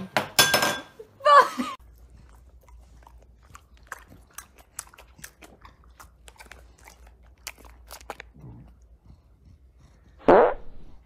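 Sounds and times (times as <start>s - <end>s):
dog chewing: 1.8s - 10.2s.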